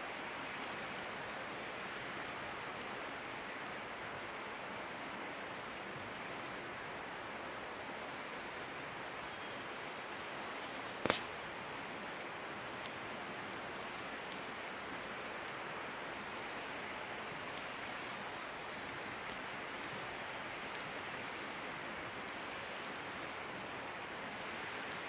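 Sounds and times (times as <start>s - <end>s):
campfire crackling and popping: 0.5s - 5.6s, 10.1s - 15.8s, 17.5s - 21.2s, 22.1s - 25.0s.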